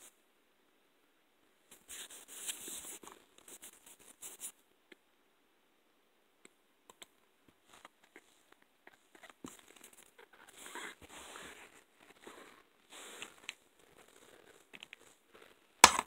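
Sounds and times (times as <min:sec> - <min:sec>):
faint rustling and scratching: 0:01.6 - 0:04.6, 0:06.9 - 0:15.8.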